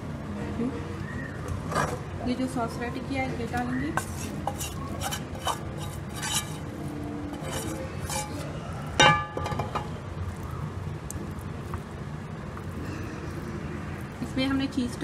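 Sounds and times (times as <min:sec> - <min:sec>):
steady low hum: 0:00.0 - 0:15.0
wooden spoon scraping a pan: 0:04.0 - 0:06.7, 0:07.3 - 0:09.1
pan clinking against metal tray: 0:07.4 - 0:10.0.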